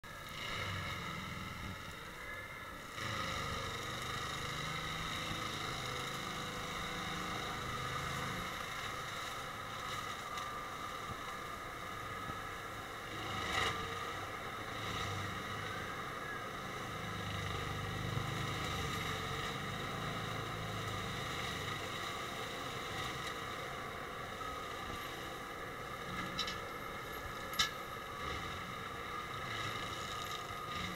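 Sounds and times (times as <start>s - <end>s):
tractor mulcher grinding: 0.1s - 15.8s, 16.6s - 30.9s.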